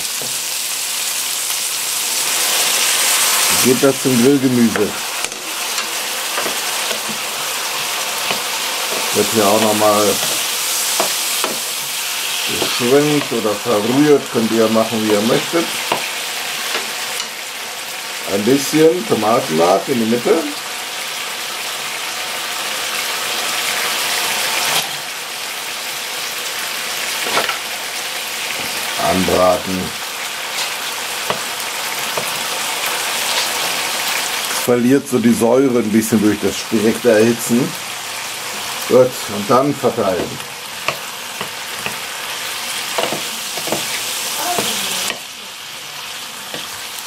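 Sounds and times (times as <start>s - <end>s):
vegetables sizzling in oil: 0.0s - 47.0s
wooden spatula scraping pan: 3.2s - 14.0s.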